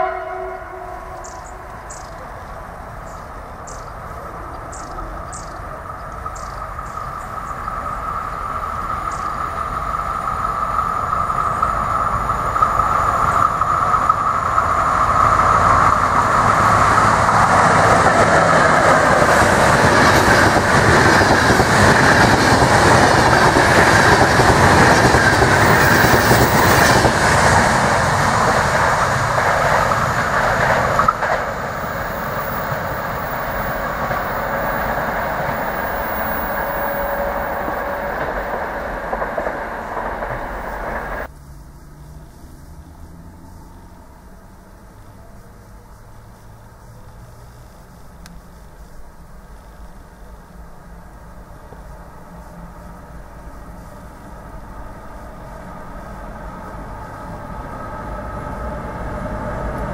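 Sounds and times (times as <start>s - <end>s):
locomotive high whine: 0.0s - 41.3s, 49.2s - 59.9s
train wheels on rails: 0.0s - 41.3s, 48.2s - 59.9s
coaches rattling by: 15.8s - 41.3s.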